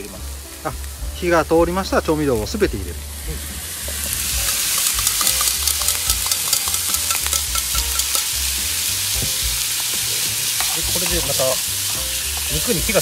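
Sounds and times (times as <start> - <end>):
beef sizzling in frying pan: 0.0 - 13.0
small crackles and clicks: 4.4 - 8.3.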